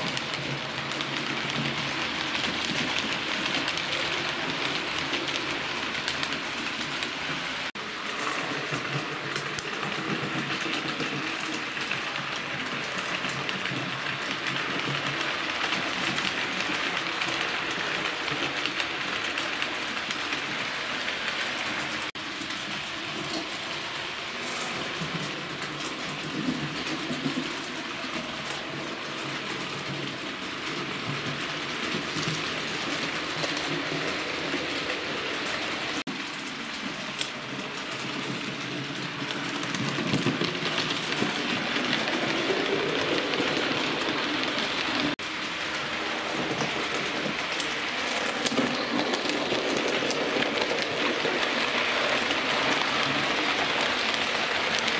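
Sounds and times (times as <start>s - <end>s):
model train rattling on track: 0.0s - 54.9s.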